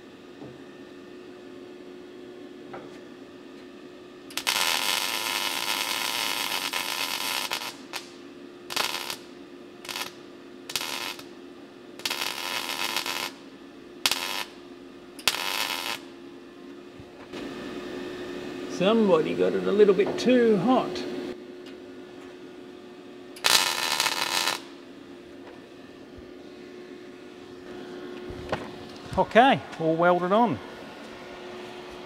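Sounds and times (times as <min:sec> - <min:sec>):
steady low hum: 0:00.0 - 0:32.0
welder crackling: 0:04.3 - 0:11.4, 0:12.0 - 0:14.6, 0:15.2 - 0:16.1, 0:23.4 - 0:24.9.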